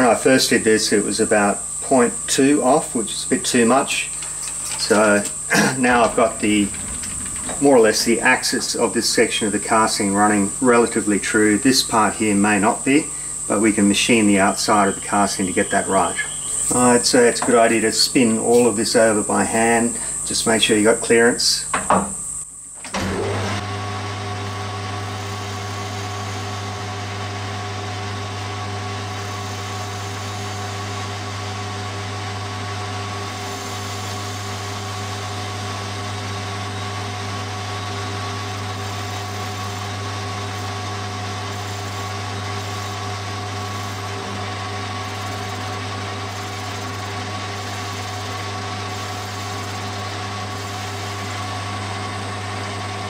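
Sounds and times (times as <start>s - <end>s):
metal lathe humming: 0.0s - 22.1s, 22.9s - 53.0s.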